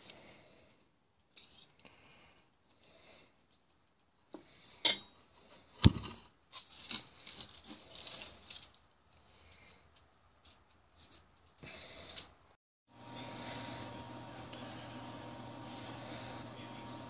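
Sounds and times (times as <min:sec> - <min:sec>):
aluminium foil crinkling: 0:06.4 - 0:12.3.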